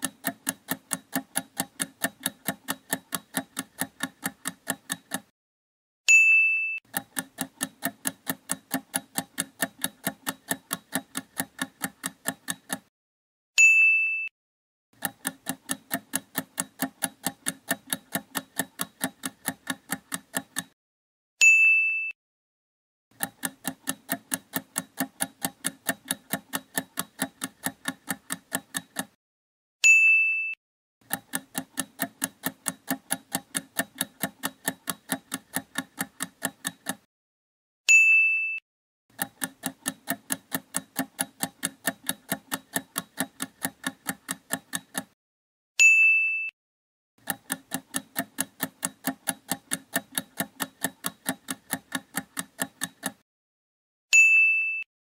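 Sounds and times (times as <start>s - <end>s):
countdown timer ticks: 0.0s - 5.3s, 6.9s - 12.9s, 15.0s - 20.8s, 23.1s - 29.2s, 31.1s - 37.1s, 39.1s - 45.2s, 47.2s - 53.2s.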